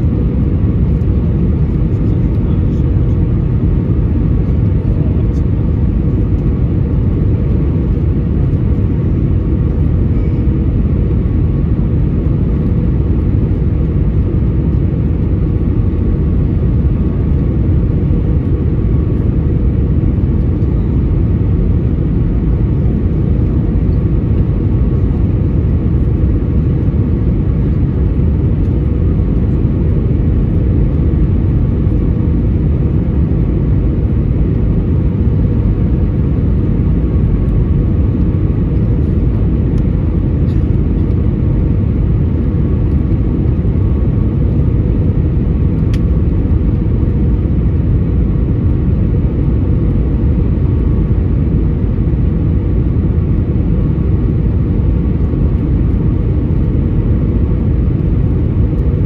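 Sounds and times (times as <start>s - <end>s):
aircraft engine rumble: 0.0s - 59.0s
faint steady hum: 0.0s - 59.0s.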